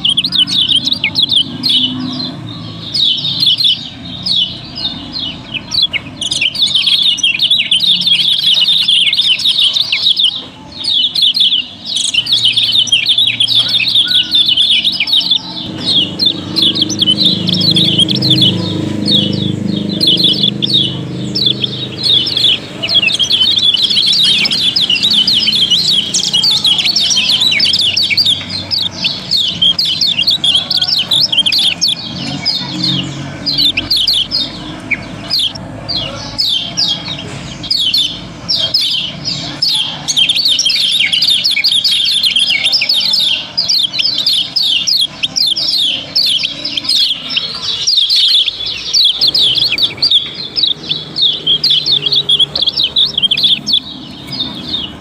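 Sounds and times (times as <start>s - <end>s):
birds chirping: 0.0s - 55.0s.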